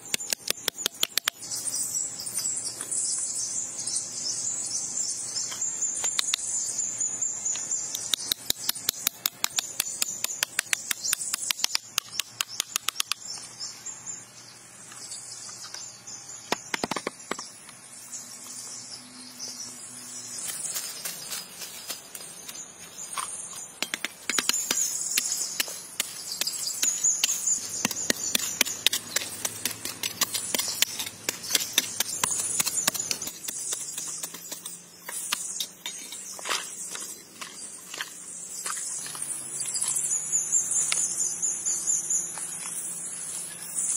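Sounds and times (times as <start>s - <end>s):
clicks and taps of hand tools: 0.1s - 1.4s, 7.9s - 13.2s, 23.2s - 26.1s.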